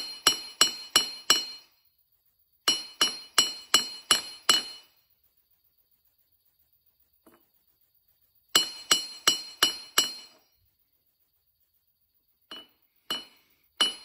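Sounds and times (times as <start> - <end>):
hammer striking metal: 0.0 - 1.8, 2.7 - 5.0, 8.6 - 10.5, 12.5 - 14.0.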